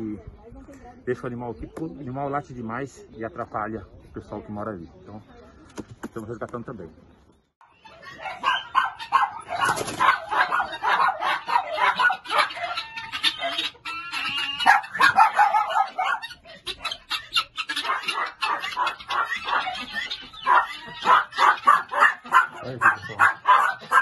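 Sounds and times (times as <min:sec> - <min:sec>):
chickens clucking: 0:00.0 - 0:24.0
dogs barking: 0:07.8 - 0:24.0.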